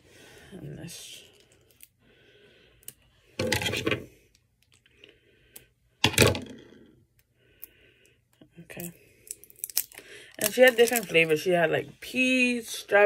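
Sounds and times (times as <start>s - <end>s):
crackling plastic: 9.2s - 11.4s
scissors cutting plastic packaging: 9.7s - 11.2s.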